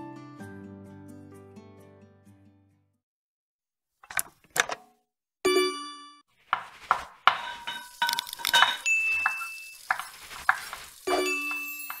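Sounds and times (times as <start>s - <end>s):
utensils and dishes clinking: 7.2s - 12.0s.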